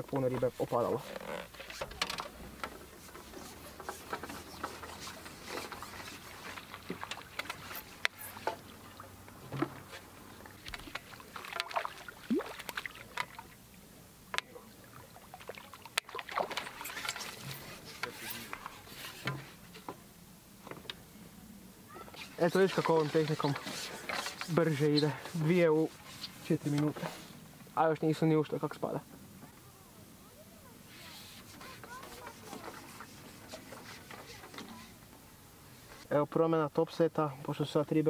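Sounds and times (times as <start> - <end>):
fishing gear clicks and knocks: 0.1 - 8.7, 9.4 - 11.9
water trickling and splashing: 0.2 - 19.3, 22.2 - 27.1.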